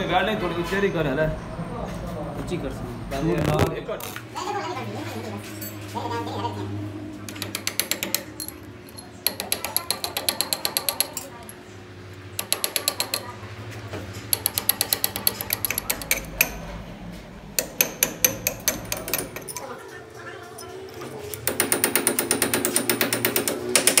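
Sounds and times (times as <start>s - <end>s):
low machine hum: 0.0s - 24.0s
rapid metallic clicking: 7.3s - 11.3s, 12.4s - 13.3s, 14.2s - 16.6s.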